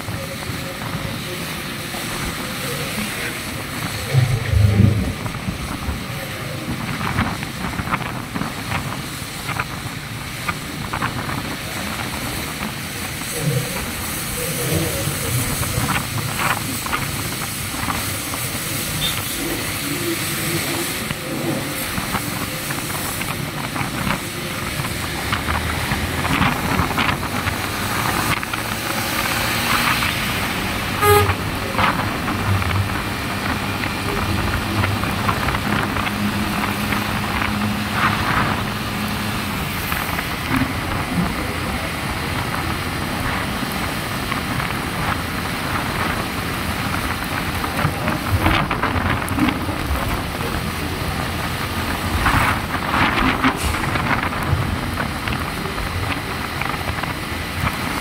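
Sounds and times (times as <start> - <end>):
tyre noise on wet road: 0.0 - 58.0
wind rushing over microphone: 0.0 - 58.0
horn toot: 31.0 - 31.8.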